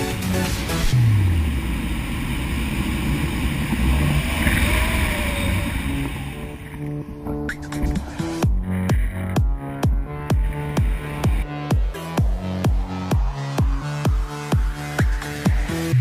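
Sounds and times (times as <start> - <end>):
electronic music: 0.0 - 2.3, 3.0 - 16.0
loud rushing noise: 0.0 - 8.4.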